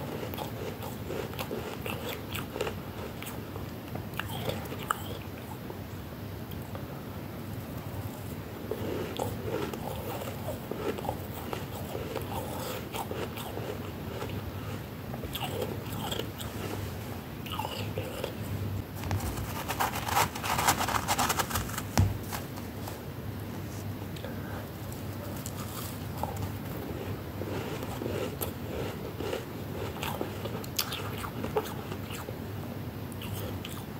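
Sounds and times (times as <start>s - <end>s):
chewing frost crunches: 0.1s - 3.4s, 8.1s - 16.8s, 25.4s - 32.3s.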